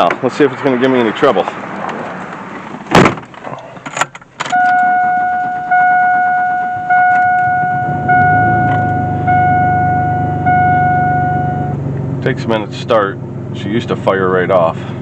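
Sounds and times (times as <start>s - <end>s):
car door slamming: 2.7s - 11.7s
dashboard warning chime: 4.5s - 11.8s.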